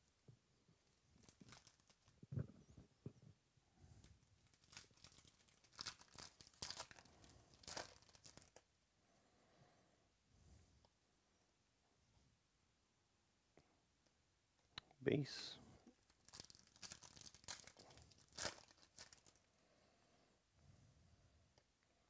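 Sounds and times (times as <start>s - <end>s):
wrapper tearing and crinkling: 1.2s - 2.2s, 4.4s - 8.6s, 16.0s - 19.5s.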